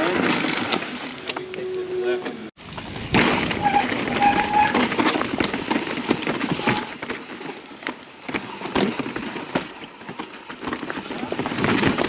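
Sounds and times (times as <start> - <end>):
bike tyres clattering over rocks: 0.0 - 1.3, 2.6 - 12.0
bike rattling: 0.0 - 1.6, 2.6 - 12.0
short squeal: 3.6 - 4.9.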